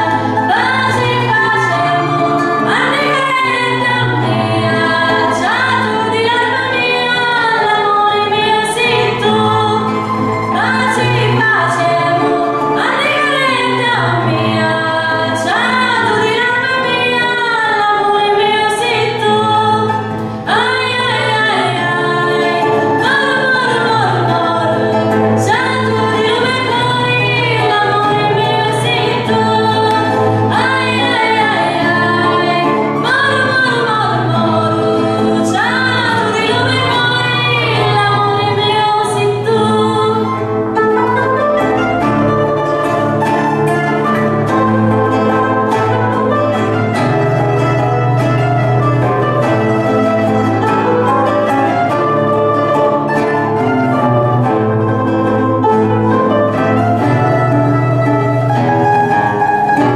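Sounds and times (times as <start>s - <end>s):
strummed acoustic guitar: 0.0s - 59.9s
woman singing: 0.0s - 59.9s.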